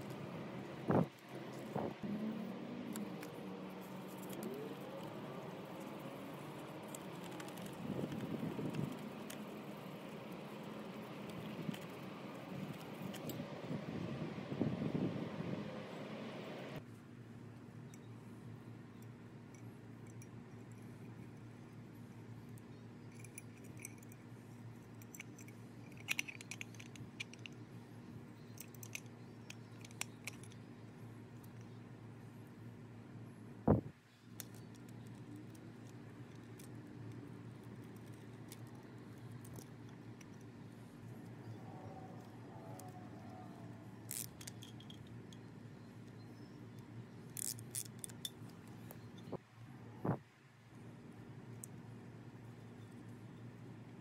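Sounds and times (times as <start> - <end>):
low steady hum: 0.0 - 54.0
metal parts clicking and clinking: 22.5 - 27.6, 28.4 - 30.7, 44.0 - 45.5.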